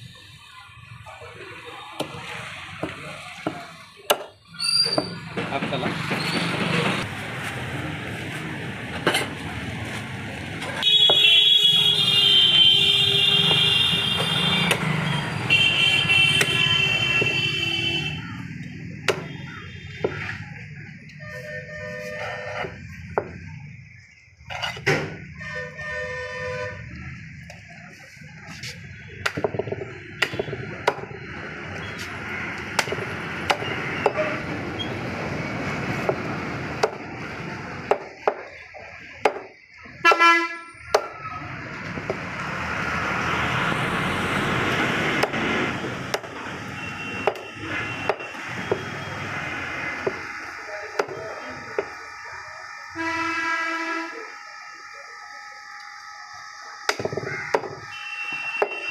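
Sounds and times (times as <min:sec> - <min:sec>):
traffic passing: 0:00.0 - 0:54.3
cleaver chopping bone on wood: 0:02.8 - 0:04.3, 0:19.0 - 0:19.4, 0:29.2 - 0:31.1, 0:32.7 - 0:34.2, 0:36.8 - 0:37.0, 0:37.8 - 0:38.6, 0:39.2 - 0:40.2, 0:40.9 - 0:41.2, 0:45.1 - 0:45.4, 0:46.1 - 0:46.3, 0:47.2 - 0:48.9, 0:50.9 - 0:52.0, 0:56.9 - 0:57.8
vehicle horns honking: 0:10.8 - 0:18.3, 0:21.2 - 0:22.8, 0:25.3 - 0:27.0, 0:40.0 - 0:41.0, 0:46.4 - 0:50.4, 0:52.9 - 0:54.4, 0:57.3 - 0:58.9.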